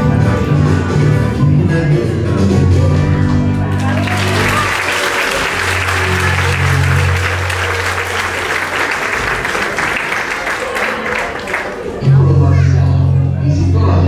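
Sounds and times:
song's low notes: 0.3s - 9.6s
audience applauding: 3.3s - 12.0s.

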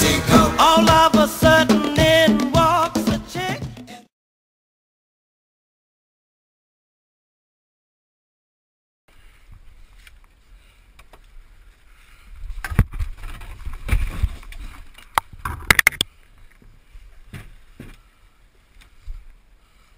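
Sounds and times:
rustling and scraping over leaves: 12.6s - 15.7s.

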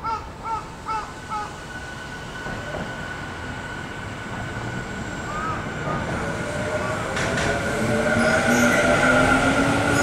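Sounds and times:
crow cawing: 0.0s - 1.5s
electric train hum and rumble: 0.0s - 10.0s.

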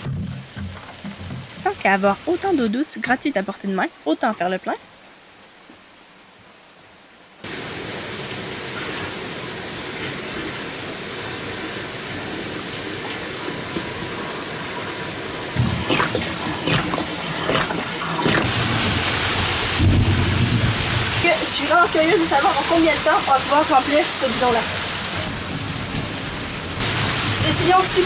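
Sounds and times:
heavy rain with splashing drops: 0.0s - 28.0s
water pouring from a jerrycan: 15.6s - 19.6s.

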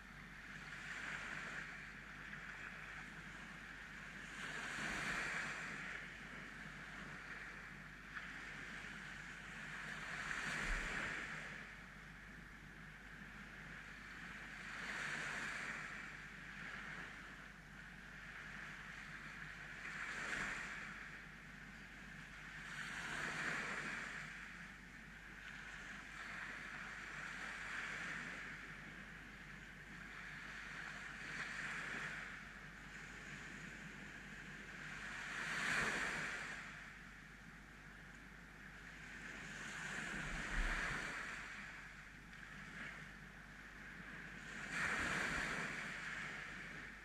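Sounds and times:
waves washing up a sandy beach: 0.0s - 47.0s.

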